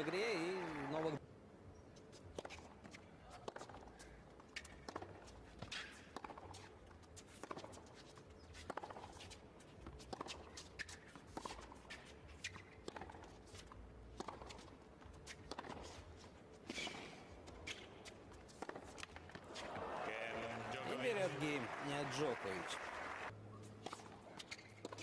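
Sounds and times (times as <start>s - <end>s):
tennis balls struck by rackets: 2.3s - 15.9s.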